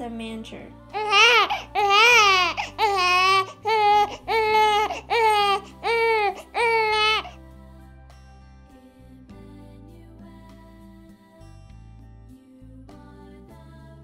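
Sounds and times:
baby crying: 0.9 - 7.4.

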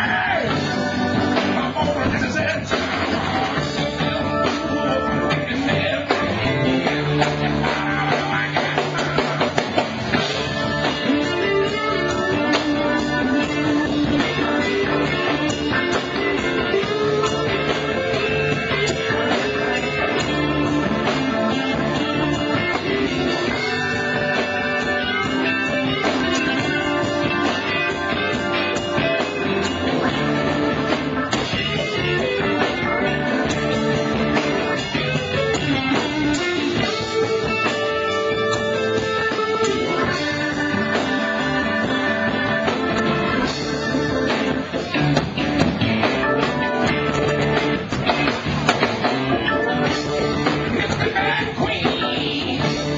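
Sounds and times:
drum kit: 0.0 - 52.9
loud electric guitar: 0.0 - 52.9.

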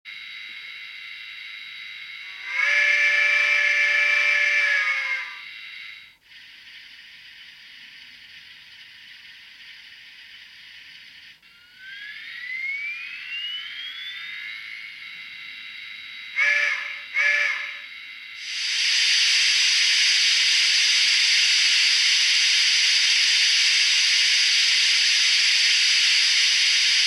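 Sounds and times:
rising whine: 0.1 - 27.0
steam hiss from small speaker: 1.5 - 27.0
chime steam whistle blast: 2.2 - 6.2, 11.5 - 27.0.

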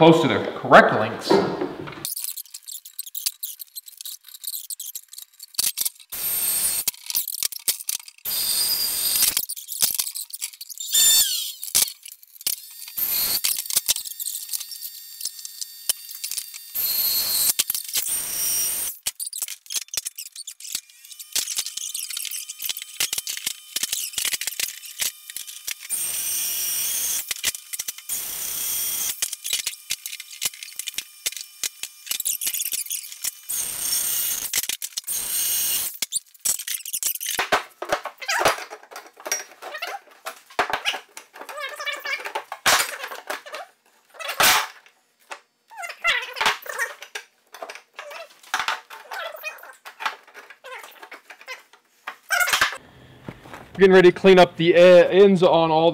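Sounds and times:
steel pieces clanking and rattling: 2.0 - 6.2, 6.8 - 8.3, 9.2 - 12.6, 18.9 - 26.0, 35.8 - 43.7
band saw cutting steel: 6.1 - 6.9, 8.3 - 9.5, 10.7 - 19.0, 20.3 - 37.3
dog whining and yelping: 49.0 - 49.8.

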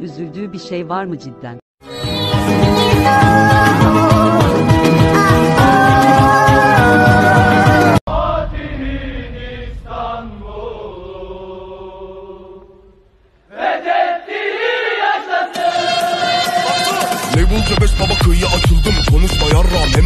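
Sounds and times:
voices chanting: 13.5 - 17.8.

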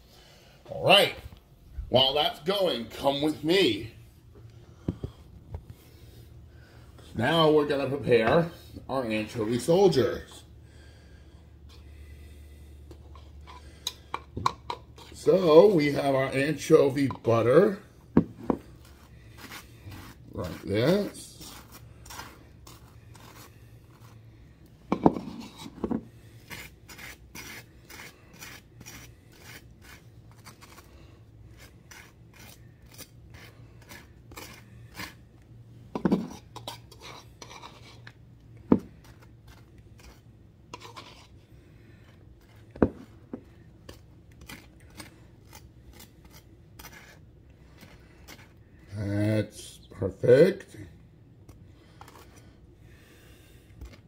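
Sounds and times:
knife scraping butter on toast: 18.6 - 24.3, 25.0 - 35.3, 36.0 - 38.2, 38.8 - 48.9, 51.5 - 52.5.

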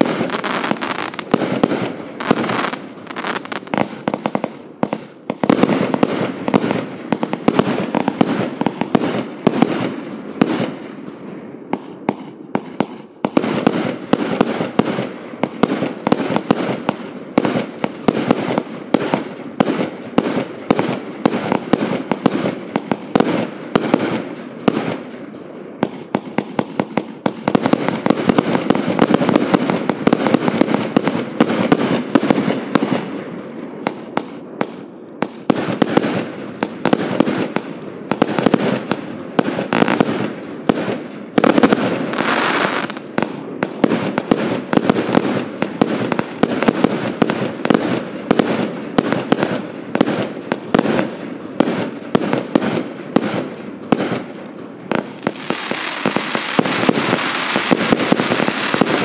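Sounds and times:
firework cake shots and bursts: 0.0 - 10.9, 33.8 - 59.0.

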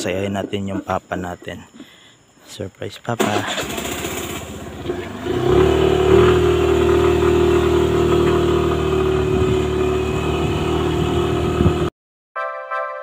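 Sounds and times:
motorcycle engine cruising: 3.3 - 11.9.

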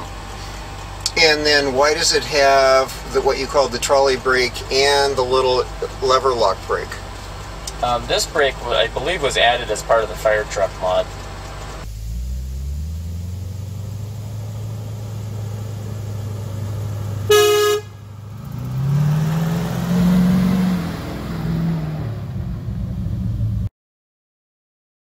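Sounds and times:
truck engine running: 0.0 - 23.7
truck horn toot: 17.2 - 18.1.

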